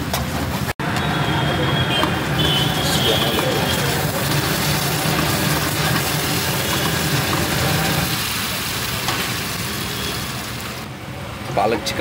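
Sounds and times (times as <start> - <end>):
gravy sizzling and bubbling: 1.8 - 10.9.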